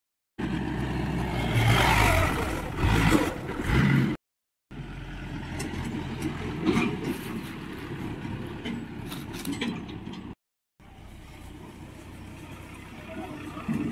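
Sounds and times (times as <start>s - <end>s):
diesel engine revving: 0.4s - 13.9s
engine running quietly: 4.7s - 13.9s.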